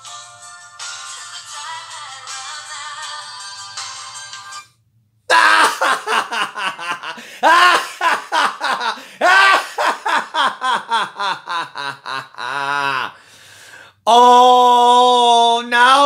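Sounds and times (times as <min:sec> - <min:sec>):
man laughing loudly: 0:05.3 - 0:13.2.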